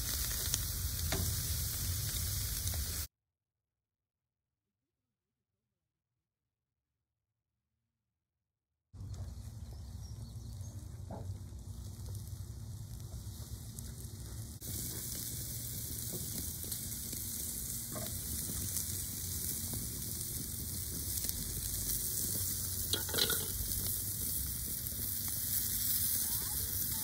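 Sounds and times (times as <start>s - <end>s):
steaks sizzling on grill: 0.0s - 3.1s, 10.3s - 27.0s.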